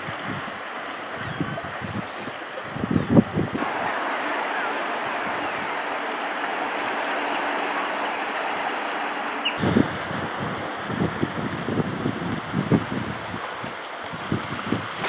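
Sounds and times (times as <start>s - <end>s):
wind buffeting the microphone: 0.0s - 5.9s, 9.4s - 15.0s
ocean surf rushing: 0.0s - 15.0s.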